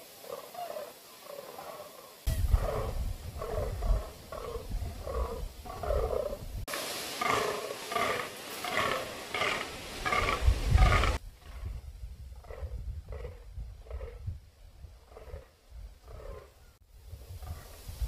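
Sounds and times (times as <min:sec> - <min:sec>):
deer croaking: 0:02.5 - 0:06.4, 0:07.2 - 0:11.8, 0:12.4 - 0:14.3, 0:15.0 - 0:16.7.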